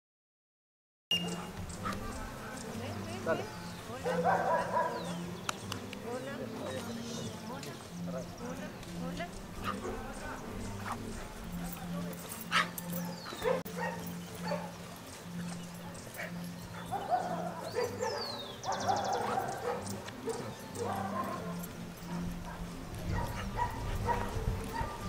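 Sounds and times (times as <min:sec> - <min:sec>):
puppy barking: 0:04.0 - 0:05.2, 0:09.6 - 0:10.1, 0:12.4 - 0:14.8, 0:16.1 - 0:25.0.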